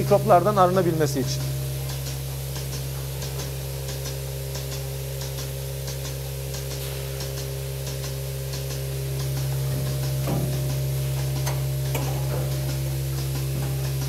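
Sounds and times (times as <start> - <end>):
milking machine pulsators clicking: 0.0 - 14.0
vacuum system low hum: 0.0 - 14.0.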